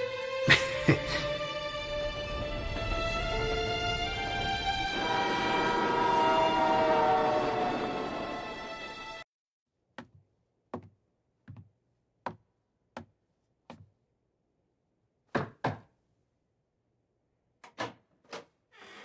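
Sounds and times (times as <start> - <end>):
footsteps on wooden floor: 10.8 - 11.7.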